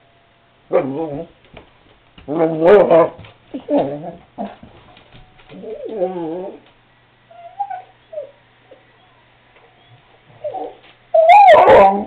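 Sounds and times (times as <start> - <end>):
dog whining: 5.5 - 6.7, 7.3 - 12.0.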